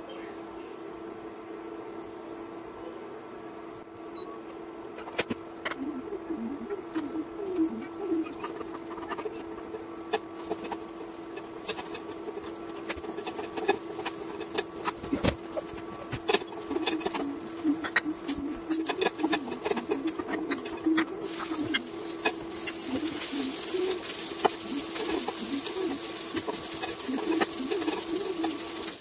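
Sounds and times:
induction cooktop humming: 0:00.0 - 0:29.0
low wavering cooing: 0:05.8 - 0:10.8, 0:11.5 - 0:29.0
steel utensils clinking: 0:15.6 - 0:29.0.

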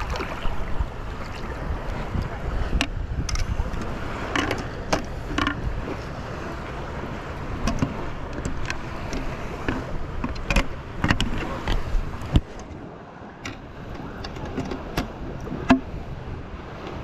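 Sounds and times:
water sloshing and dripping: 0:00.0 - 0:06.1.

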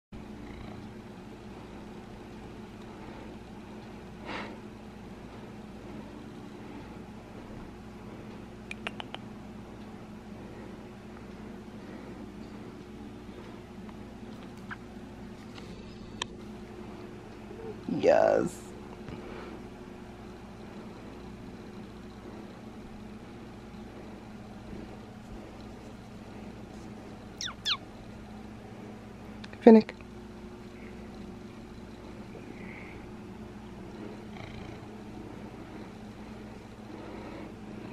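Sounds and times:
cat purring: 0:00.2 - 0:02.2, 0:30.7 - 0:37.9.

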